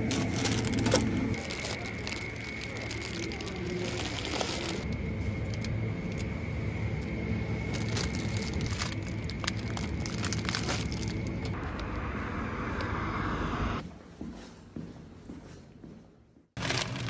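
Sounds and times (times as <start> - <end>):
plastic packaging crinkling: 0.0 - 6.3, 7.6 - 11.6, 16.6 - 17.0
low background hum: 0.0 - 14.1.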